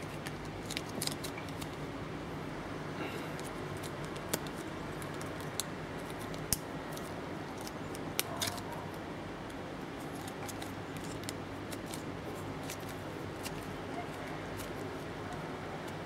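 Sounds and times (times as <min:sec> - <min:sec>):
card pieces clicking and crinkling: 0:00.0 - 0:01.8, 0:10.0 - 0:14.8.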